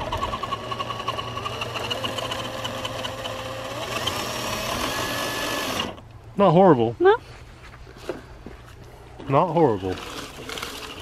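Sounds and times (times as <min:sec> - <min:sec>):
electric motor whine: 0:00.0 - 0:06.0, 0:09.4 - 0:11.0.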